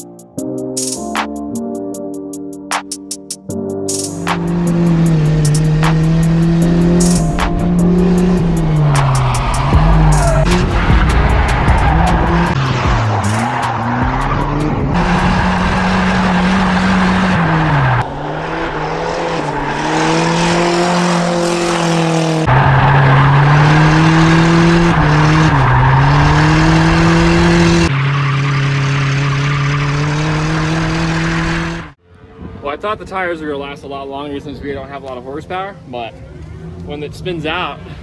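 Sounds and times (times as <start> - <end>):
truck engine revving: 3.9 - 32.0
tyres squealing and skidding: 7.8 - 31.9.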